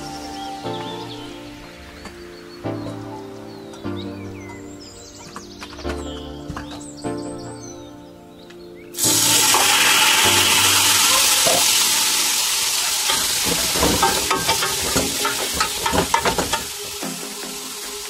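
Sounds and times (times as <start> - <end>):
meat sizzling in hot oil: 9.0 - 18.0.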